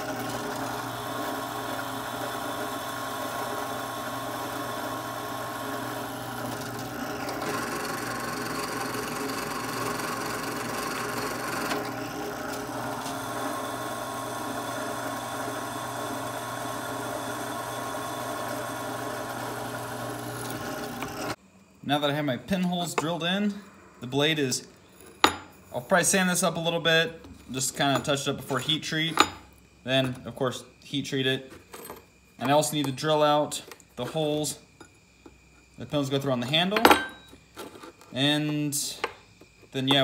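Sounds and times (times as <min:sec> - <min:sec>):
drill press drilling metal: 0:00.0 - 0:21.4.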